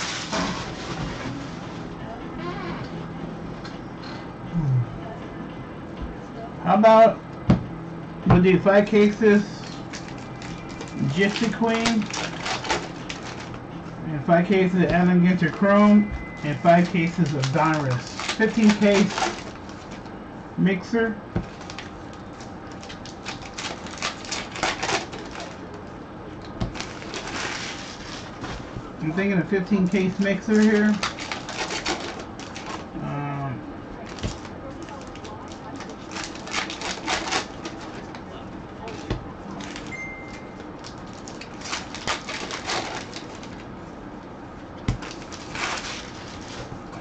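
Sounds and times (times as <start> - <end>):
cards riffling: 16.8 - 20.0.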